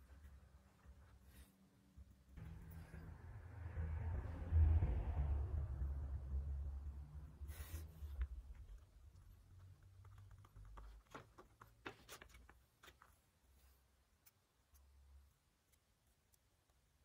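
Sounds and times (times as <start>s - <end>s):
faint low rumble: 0.0s - 10.6s
paper rustling and crackling: 9.8s - 13.3s.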